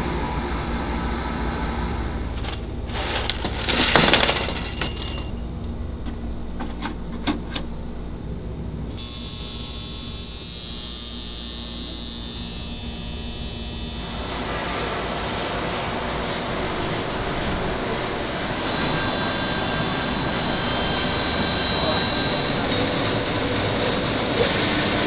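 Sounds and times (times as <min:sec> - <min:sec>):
low factory hum: 0:00.0 - 0:25.0
ultrasonic cleaner hissing: 0:09.0 - 0:15.0.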